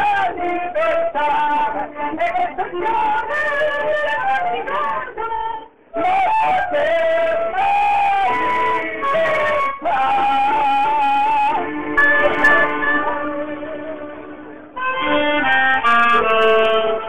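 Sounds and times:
clarinet and accordion music: 0:06.0 - 0:17.0.

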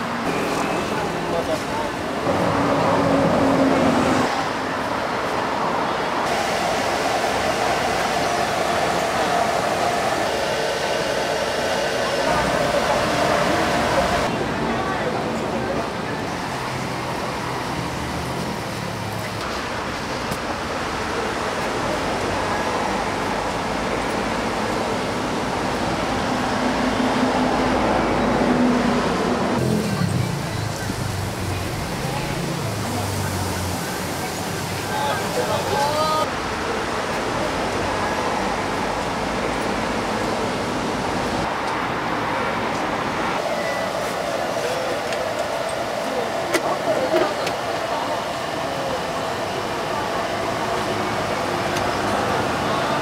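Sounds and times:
street traffic hum: 0:00.0 - 0:53.0.

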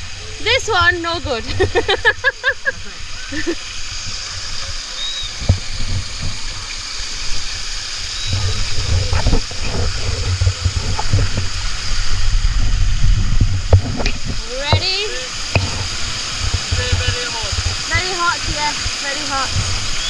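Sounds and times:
water rushing down a slide: 0:00.0 - 0:20.0
low rumbling and knocks: 0:05.4 - 0:06.9, 0:08.3 - 0:20.0.

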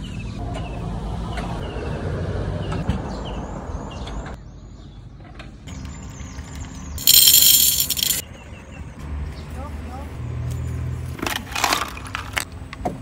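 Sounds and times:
coffee beans rattling into steel cup: 0:07.0 - 0:08.2.

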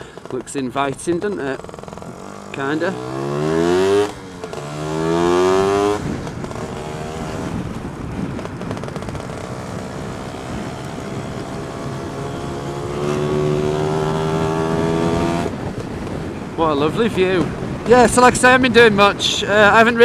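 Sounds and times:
scooter engine revving: 0:01.4 - 0:16.1
wind noise: 0:03.1 - 0:20.0.

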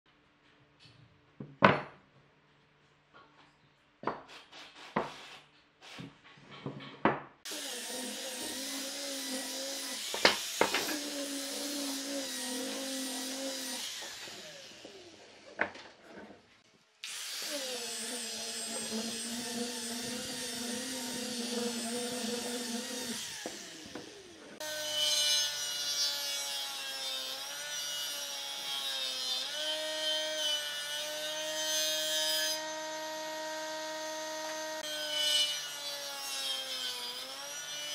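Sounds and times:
wooden blocks knocking on workbench: 0:01.4 - 0:02.0
jointer motor cutting board: 0:07.5 - 0:15.4, 0:17.0 - 0:25.0
angle grinder sanding wood: 0:07.5 - 0:15.6, 0:17.1 - 0:37.9.

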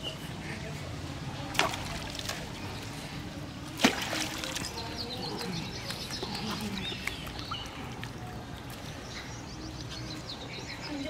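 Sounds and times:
fishing line splashing into water: 0:01.5 - 0:02.5, 0:03.7 - 0:04.8
small birds chirping: 0:04.4 - 0:11.0.

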